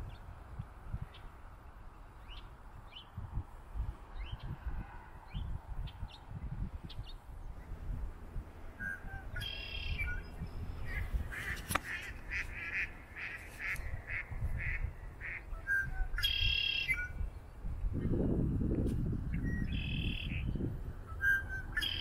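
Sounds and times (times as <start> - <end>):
blackbird buzzy trilled song: 2.2 - 3.2, 8.6 - 18.2, 19.2 - 22.0
short repeated bird notes: 8.8 - 17.2, 21.2 - 22.0.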